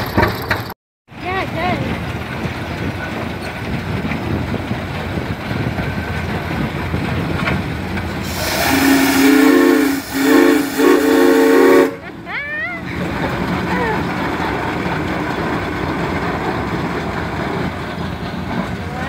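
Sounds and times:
steam engine rumble and clatter: 0:00.0 - 0:19.0
steam hissing: 0:08.2 - 0:12.0
steam whistle blast: 0:08.2 - 0:12.0.

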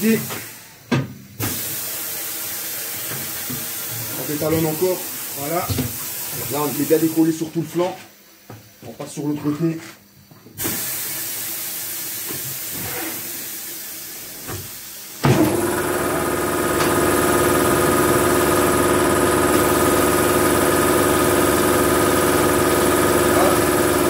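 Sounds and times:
compressed air hissing: 0:01.4 - 0:07.4, 0:10.6 - 0:15.2.

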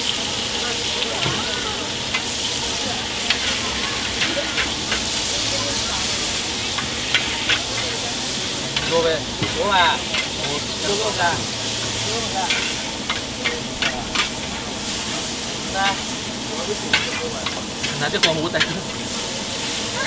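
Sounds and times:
noodles sizzling in a wok: 0:00.0 - 0:20.0
metal spatula scraping and clacking: 0:03.2 - 0:05.4, 0:06.4 - 0:16.1, 0:16.7 - 0:19.0.

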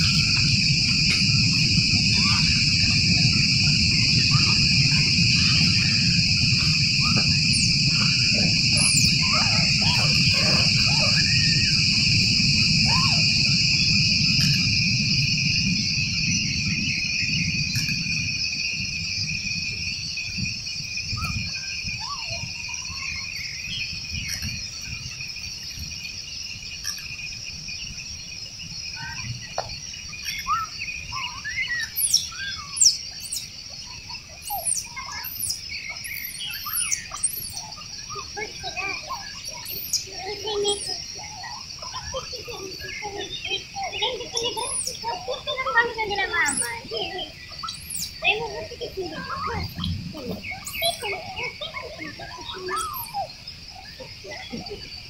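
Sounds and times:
high chirps and squeaks: 0:00.0 - 0:13.3, 0:34.4 - 0:53.3
low rumble: 0:00.0 - 0:19.8
insects whining: 0:00.0 - 0:55.0.

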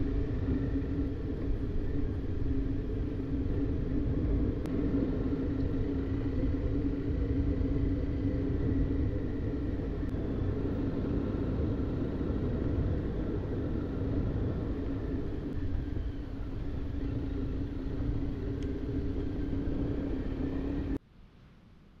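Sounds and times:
low rumble: 0:00.0 - 0:21.0
vehicle engine driving: 0:00.0 - 0:21.0.

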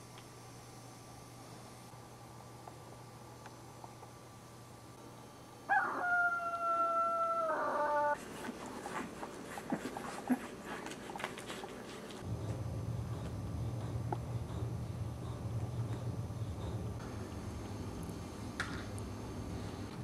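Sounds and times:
dog whining: 0:07.1 - 0:08.2
low hum: 0:12.1 - 0:20.0.

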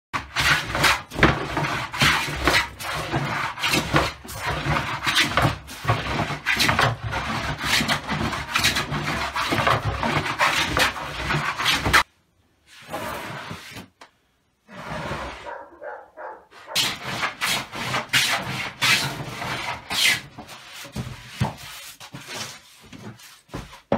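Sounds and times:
hand plane scraping wood: 0:00.2 - 0:12.1, 0:12.7 - 0:13.9, 0:14.7 - 0:15.6, 0:16.6 - 0:23.8.

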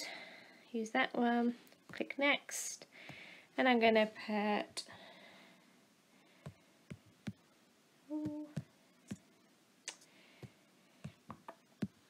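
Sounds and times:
person humming: 0:08.1 - 0:08.6.

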